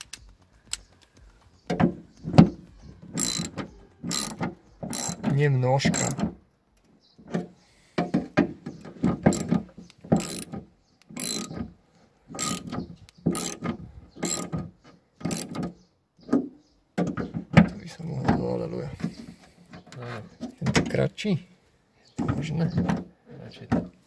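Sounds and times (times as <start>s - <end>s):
hand ratchet clicking: 3.1s - 5.3s, 5.9s - 6.2s, 9.3s - 9.5s, 10.2s - 11.6s, 12.4s - 13.6s, 14.2s - 14.5s, 15.3s - 15.6s.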